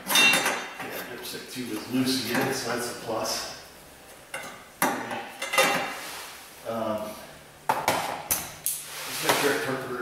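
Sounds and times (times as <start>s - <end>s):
metal tools clinking and clanking: 0.0s - 1.0s.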